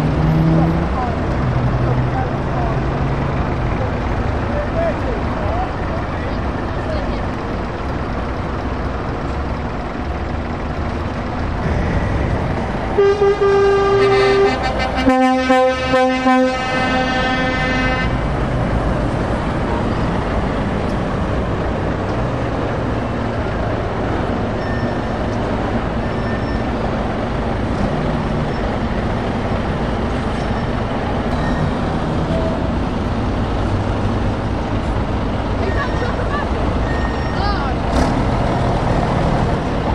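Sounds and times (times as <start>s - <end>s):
passing lorry engines: 0.0s - 39.9s
low lorry horn blasts: 12.9s - 18.3s
high lorry horn: 12.9s - 18.5s.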